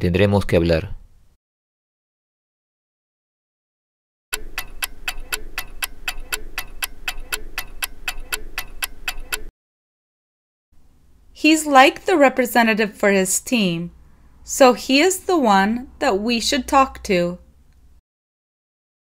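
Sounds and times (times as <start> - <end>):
clock ticking: 4.3 - 9.5.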